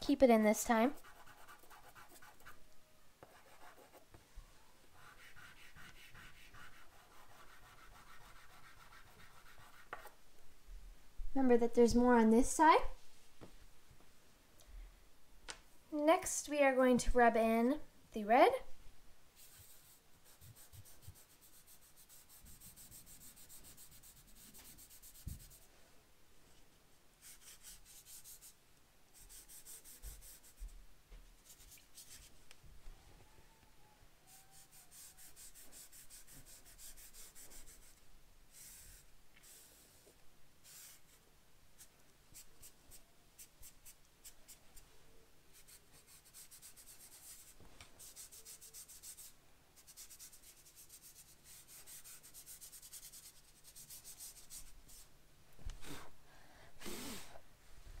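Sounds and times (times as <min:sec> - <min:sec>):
fingertips rubbing pastel on paper: 0:01.0 - 0:02.6, 0:05.0 - 0:10.1, 0:19.4 - 0:25.7, 0:27.2 - 0:28.6, 0:29.2 - 0:30.7, 0:34.3 - 0:40.0, 0:45.5 - 0:55.0.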